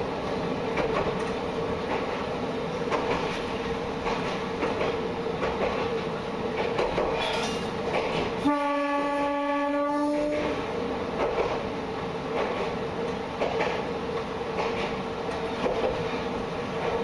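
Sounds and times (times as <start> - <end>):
diesel railcar drone: 0.0 - 17.0
rail joint clicks: 0.0 - 17.0
train horn: 8.4 - 10.7.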